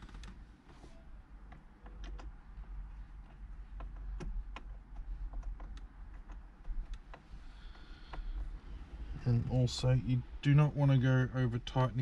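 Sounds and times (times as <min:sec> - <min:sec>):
low steady rumble: 0:00.0 - 0:12.0
small clicks and taps: 0:01.4 - 0:02.4, 0:03.0 - 0:08.6.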